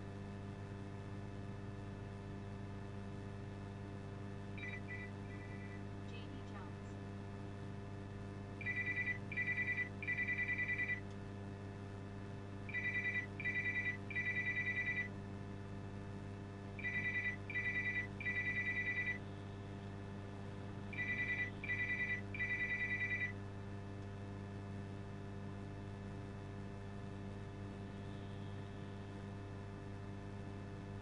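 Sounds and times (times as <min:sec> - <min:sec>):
steady low hum: 0:00.0 - 0:31.0
electronic trilling ring: 0:04.6 - 0:05.8, 0:08.6 - 0:11.0, 0:12.7 - 0:15.1, 0:16.8 - 0:19.2, 0:20.9 - 0:23.3.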